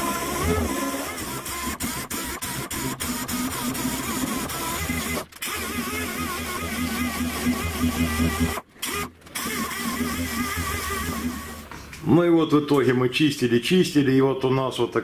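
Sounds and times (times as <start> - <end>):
angle grinder on sheet steel: 0.0 - 11.7.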